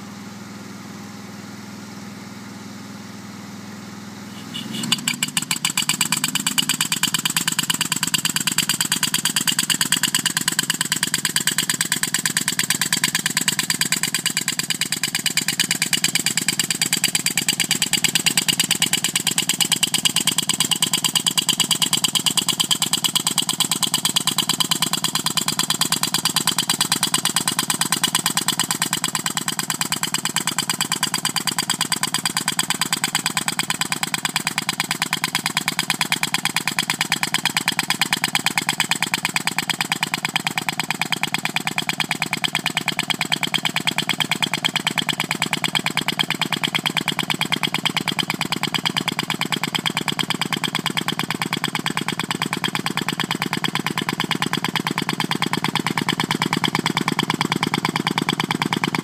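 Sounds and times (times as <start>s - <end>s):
steady engine hum: 3.6s - 10.8s
pneumatic tool hammering rapidly: 4.4s - 59.0s.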